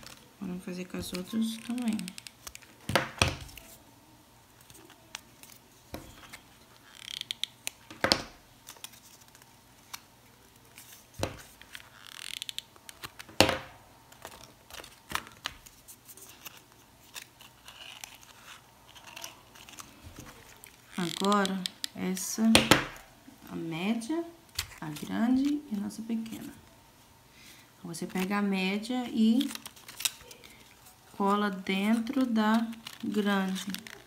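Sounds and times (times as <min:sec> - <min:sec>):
paper rustling and crinkling: 0:00.0 - 0:03.8, 0:08.6 - 0:13.4, 0:14.1 - 0:21.6, 0:24.5 - 0:26.6, 0:28.0 - 0:34.0.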